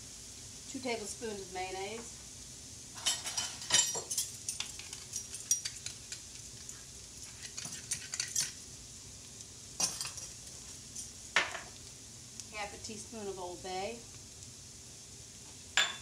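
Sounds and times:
faint pan sizzle: 0.0 - 16.0
metal spoon scraping a skillet: 3.0 - 8.6.

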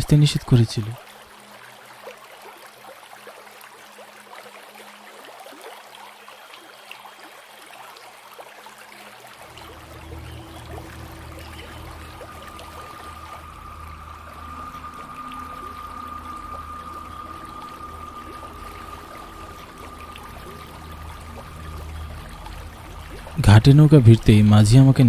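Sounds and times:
faint steady tone: 0.0 - 25.0
river water trickling and lapping: 0.0 - 25.0
low steady hum: 8.9 - 25.0.

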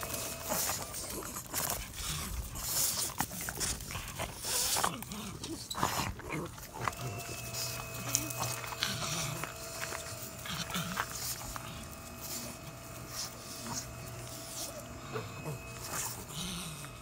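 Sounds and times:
dogs breathing and snorting: 0.0 - 17.0.

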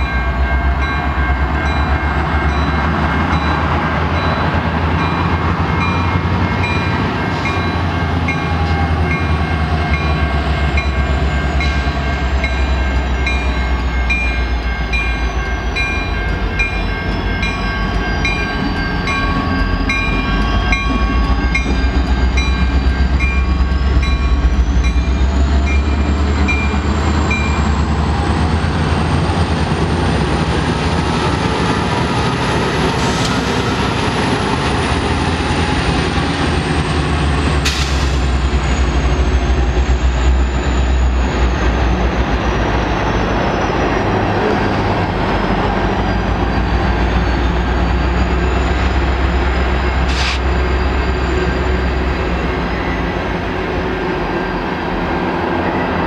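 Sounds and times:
level-crossing bell ringing: 0.0 - 28.7
diesel locomotives rumbling past: 0.0 - 56.0.

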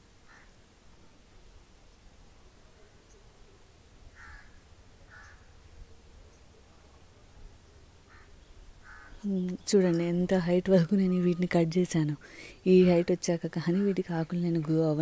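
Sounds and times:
background hiss: 0.0 - 15.0
crow cawing: 4.2 - 5.5, 8.1 - 9.2.

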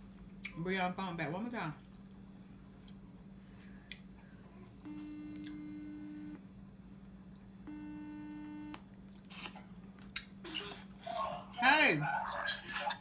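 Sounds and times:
phone ringing tone: 7.7 - 8.8.

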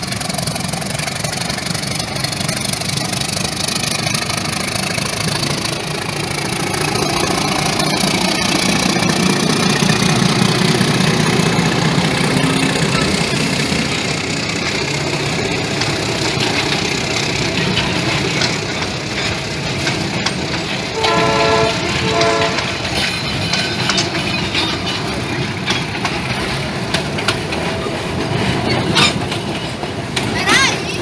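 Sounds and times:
train wheels on rails: 0.0 - 31.0
locomotive horn blasts: 21.0 - 22.8.

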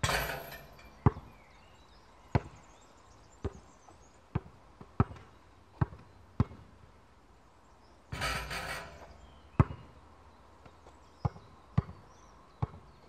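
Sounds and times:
basketball bouncing on court: 0.0 - 1.3, 2.4 - 2.6, 4.3 - 6.7, 8.2 - 9.9, 11.2 - 12.0, 12.6 - 12.9.

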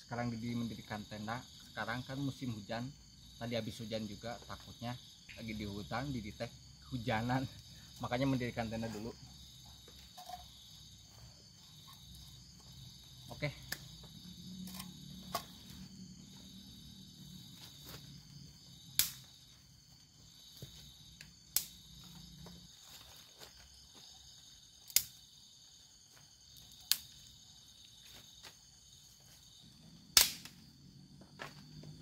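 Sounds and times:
night insects chorus: 0.0 - 32.0
wooden sticks cracking: 19.0 - 19.3, 21.2 - 21.8, 24.9 - 25.2, 26.6 - 27.2, 30.2 - 30.6.

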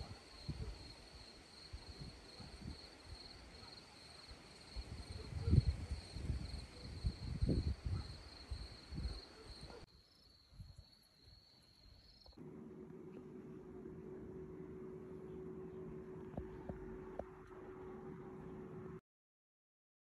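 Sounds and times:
crickets chirping: 0.0 - 12.9
steady low hum: 12.4 - 19.0
microphone thumps and rumble: 16.2 - 17.5.

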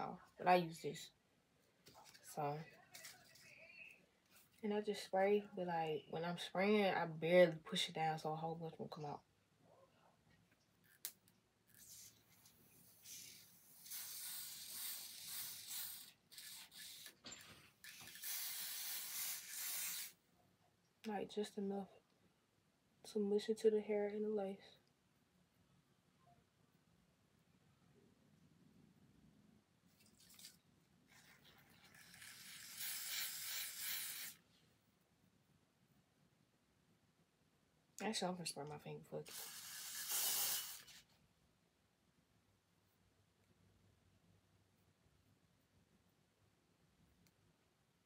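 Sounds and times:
aerosol spray hissing: 13.0 - 17.1, 17.9 - 20.2, 32.0 - 34.4, 39.3 - 41.0.

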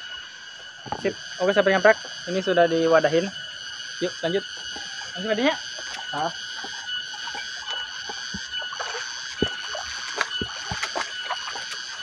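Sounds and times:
high-pitched drone: 0.0 - 12.0
water trickling in a channel: 3.8 - 12.0
footsteps on wet path: 5.8 - 12.0.

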